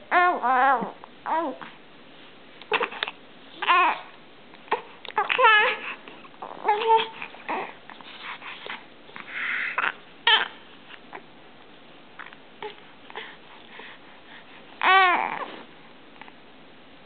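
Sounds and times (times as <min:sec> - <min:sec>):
infant snuffling and cooing: 0:02.7 - 0:11.3, 0:12.2 - 0:15.8.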